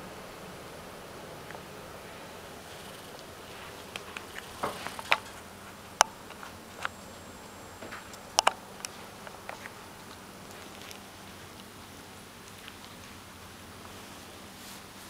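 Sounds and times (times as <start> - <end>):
ferret licking clicks: 2.7 - 5.4, 8.1 - 13.2.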